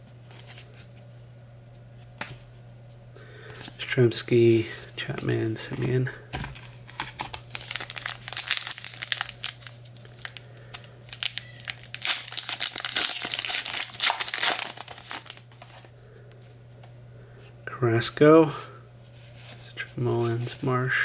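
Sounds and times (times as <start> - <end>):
foil wrapper crinkling: 6.6 - 15.9.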